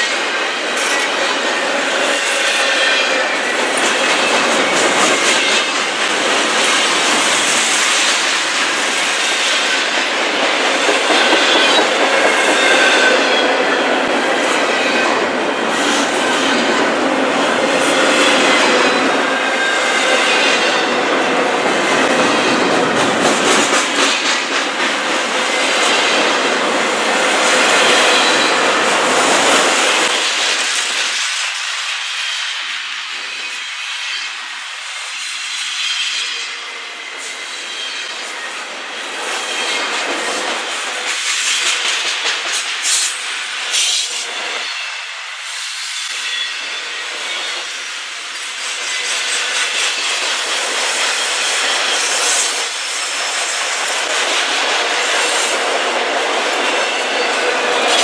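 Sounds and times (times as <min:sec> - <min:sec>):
train wheels clicking on rails: 0:00.0 - 0:58.0.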